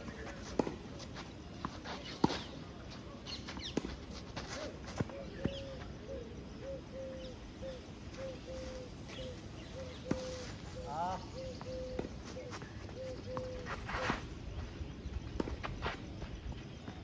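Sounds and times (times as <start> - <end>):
bird chirps: 5.2 - 15.5
bird calling low note: 5.3 - 13.8.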